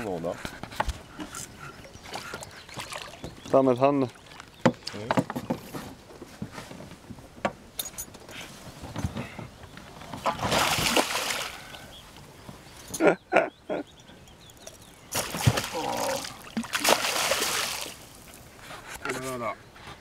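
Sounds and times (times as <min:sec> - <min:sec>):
fish splashing at surface: 0:15.1 - 0:18.1.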